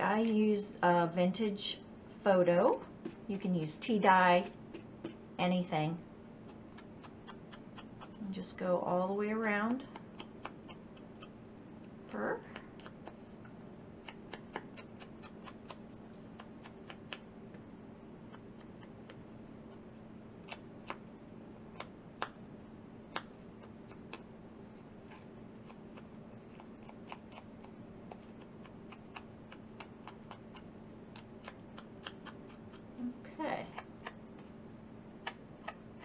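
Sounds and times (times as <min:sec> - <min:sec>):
steady low hum: 0:00.0 - 0:36.0
paper clicks and ticks: 0:09.7 - 0:11.3, 0:14.0 - 0:17.3, 0:25.1 - 0:33.0.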